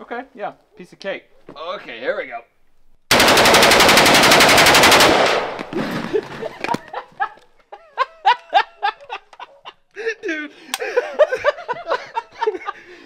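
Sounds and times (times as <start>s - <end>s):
automatic gunfire burst: 3.1s - 5.8s
man laughing: 5.8s - 13.0s.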